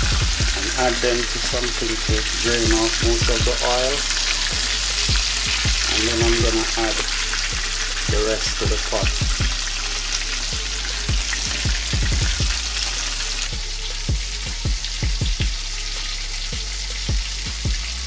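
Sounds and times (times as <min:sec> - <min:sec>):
short low thumps: 0:00.0 - 0:00.6
chicken deep-frying in oil: 0:00.0 - 0:18.0.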